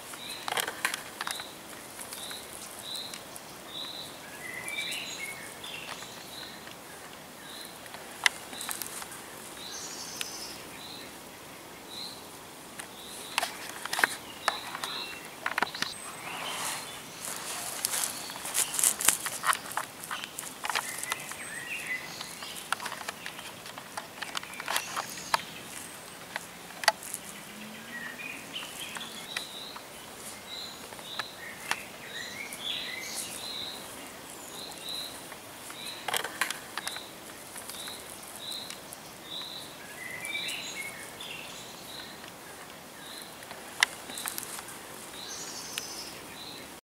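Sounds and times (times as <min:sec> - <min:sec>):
background hiss: 0:00.0 - 0:46.8
sharp clicks: 0:12.8 - 0:16.0
bird chirps: 0:27.2 - 0:43.4.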